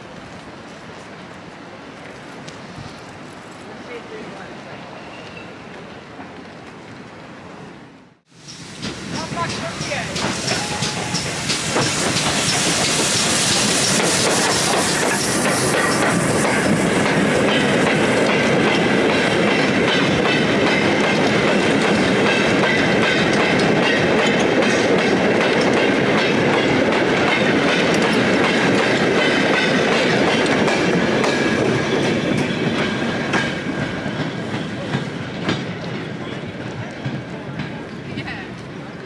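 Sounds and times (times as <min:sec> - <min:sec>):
freight train rumbling past: 0:00.0 - 0:39.0
sharp clacks of train wheels: 0:08.3 - 0:39.0.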